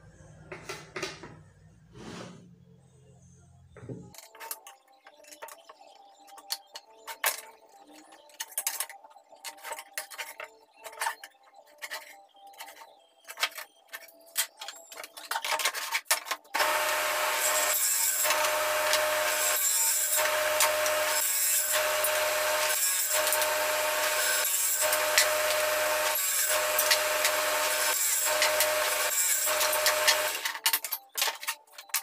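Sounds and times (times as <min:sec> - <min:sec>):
table saw cutting wood: 0:16.5 - 0:30.6.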